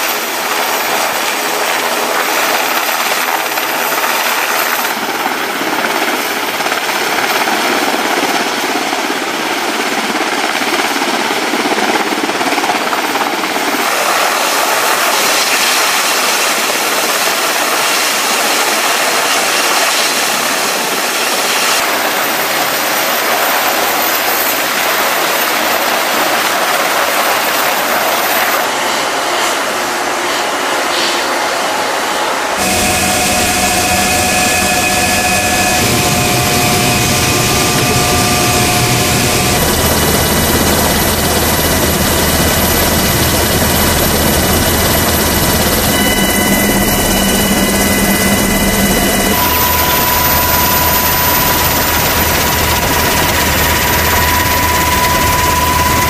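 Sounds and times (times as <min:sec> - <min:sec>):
aircraft engine rush and whine: 0:00.0 - 0:56.0
helicopter hovering: 0:00.0 - 0:56.0
low hum: 0:32.4 - 0:56.0.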